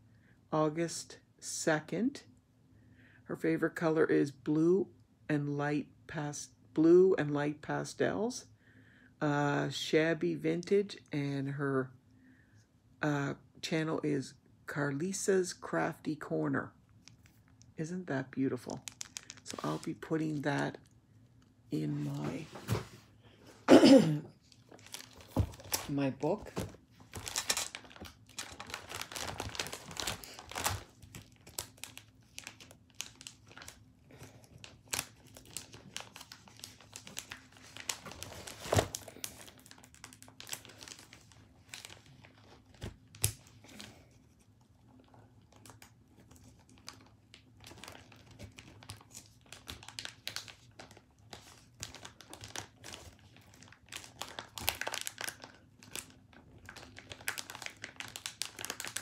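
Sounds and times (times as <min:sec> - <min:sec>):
paper crinkling and rustling: 0:18.8 - 0:20.8, 0:24.4 - 0:59.0.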